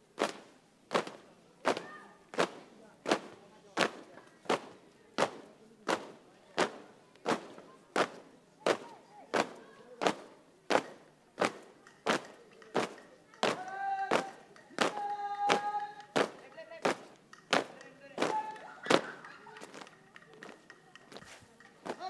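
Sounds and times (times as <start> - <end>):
marching feet stamping on paving: 0.2 - 22.0
voices: 0.9 - 22.0.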